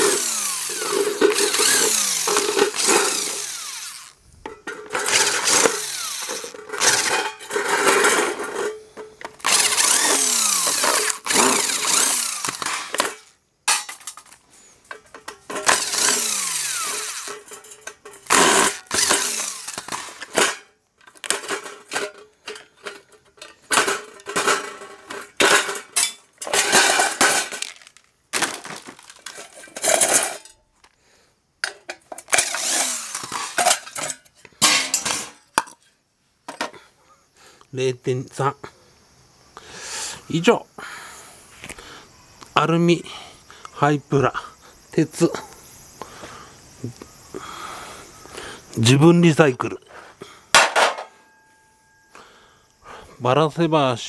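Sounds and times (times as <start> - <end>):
cordless power driver whirring: 0.0 - 4.2, 4.9 - 7.1, 9.4 - 13.3, 15.6 - 17.5, 18.3 - 20.4, 32.3 - 33.6.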